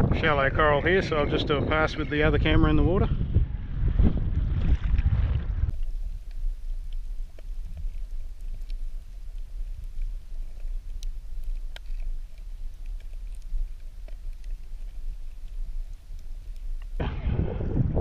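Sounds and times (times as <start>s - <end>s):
muffled underwater rumble: 0.0s - 18.0s
wind and water noise: 0.0s - 18.0s
faint underwater clicks: 5.7s - 17.0s.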